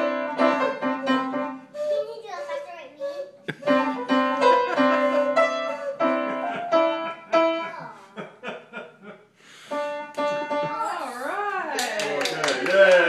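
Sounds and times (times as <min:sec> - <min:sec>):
whistle playing held notes: 0:00.0 - 0:06.4.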